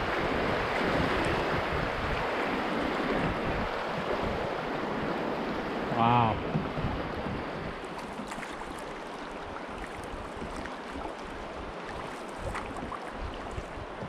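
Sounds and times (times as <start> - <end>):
wind on the microphone: 0.0 - 7.9, 9.8 - 14.0
river water rushing around canoe: 0.0 - 14.0
small splashes: 7.8 - 13.8.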